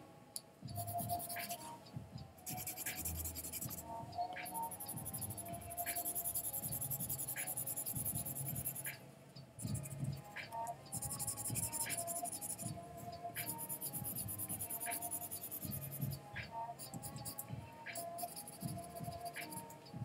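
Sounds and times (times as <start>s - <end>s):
colored pencil scratching paper: 0.8s - 1.8s, 2.4s - 3.8s, 4.4s - 9.0s, 9.6s - 10.2s, 10.9s - 12.7s, 13.4s - 16.2s, 16.8s - 19.7s.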